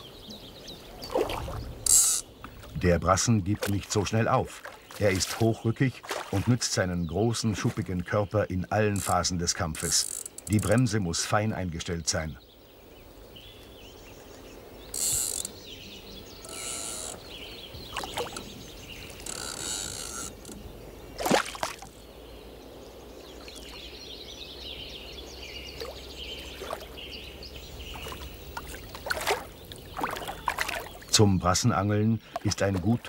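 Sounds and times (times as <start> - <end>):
fishing reel drag ratcheting: 1.8 - 2.2, 9.8 - 10.8, 14.9 - 15.6, 16.4 - 17.2, 19.2 - 20.6.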